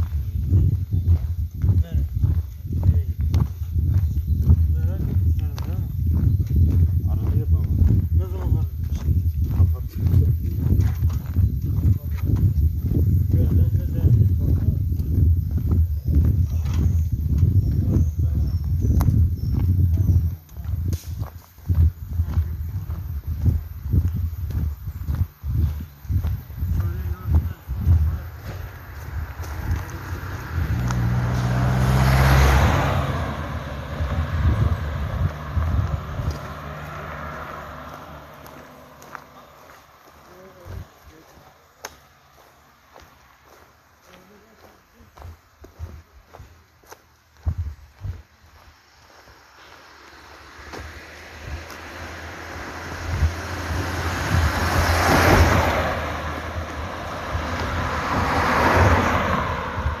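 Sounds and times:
cars passing on road: 0.0s - 60.0s
car driving past: 27.0s - 43.6s, 48.9s - 60.0s.

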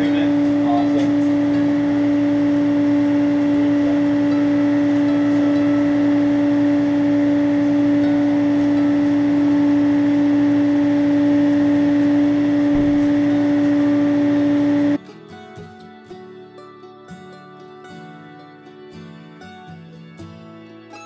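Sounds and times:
steady electronic tone: 0.0s - 15.0s.

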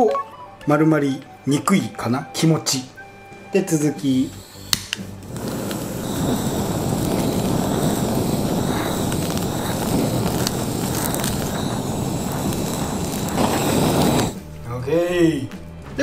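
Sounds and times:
gas torch flame: 4.0s - 14.5s.

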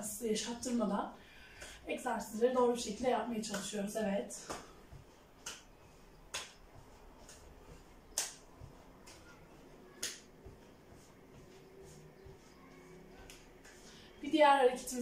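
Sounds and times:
sharp hand claps: 5.4s - 5.7s, 6.3s - 6.6s, 8.1s - 9.3s, 9.9s - 10.4s.

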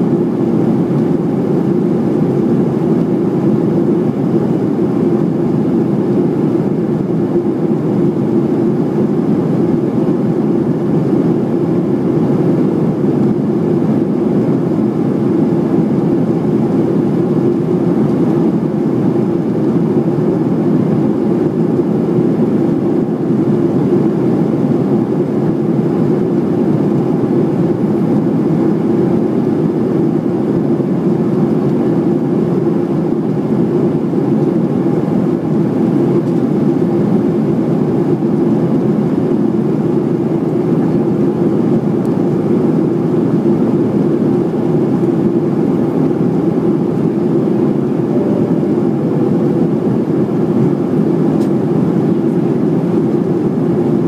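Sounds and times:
aircraft cabin engine drone: 0.0s - 54.0s
steady low hum: 0.0s - 54.0s
airflow rushing: 46.0s - 52.6s.

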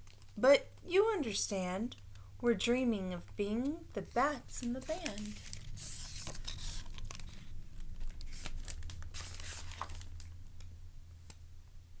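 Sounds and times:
low steady hum: 0.0s - 12.0s
book rustling and crinkling: 4.0s - 10.4s.

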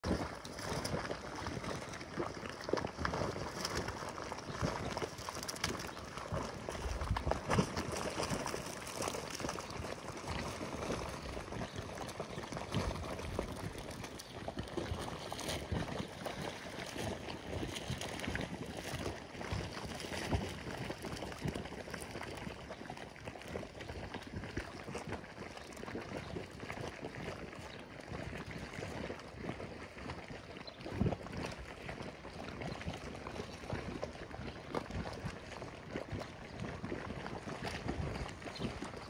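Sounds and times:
mud bubbling and popping: 0.0s - 39.0s.

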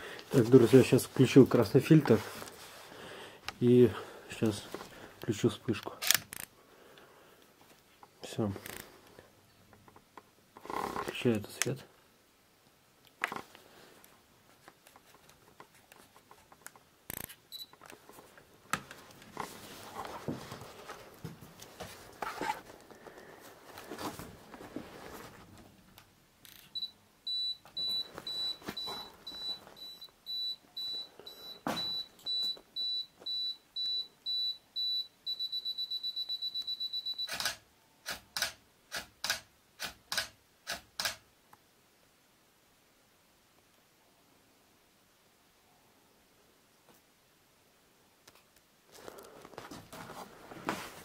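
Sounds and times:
footsteps: 18.0s - 25.7s, 27.7s - 30.1s, 31.6s - 32.6s, 48.9s - 51.0s
camera shutter clicks: 37.3s - 41.2s.

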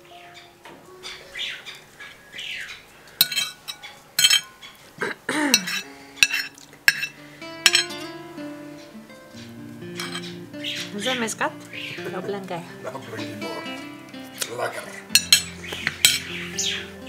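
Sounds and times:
cutlery scraping on a plate: 3.2s - 4.5s, 5.6s - 7.9s, 10.0s - 10.3s, 15.2s - 16.3s.

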